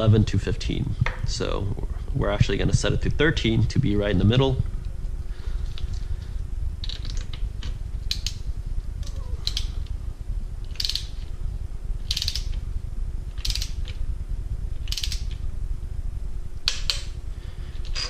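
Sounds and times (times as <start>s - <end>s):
steady low hum: 0.0s - 18.0s
torque wrench ratchet clicking: 8.1s - 8.4s, 9.4s - 9.7s, 10.7s - 11.2s, 12.0s - 12.6s, 13.4s - 14.0s, 14.8s - 15.4s.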